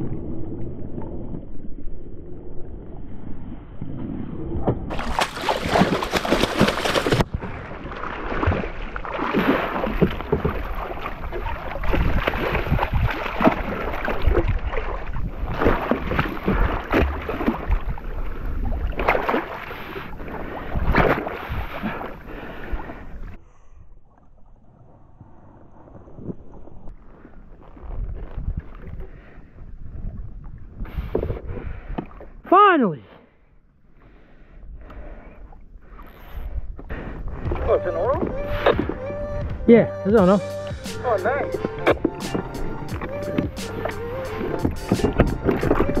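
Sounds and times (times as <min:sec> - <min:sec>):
water splashing around kayak: 0:00.0 - 0:32.6, 0:33.2 - 0:39.6, 0:40.6 - 0:46.0.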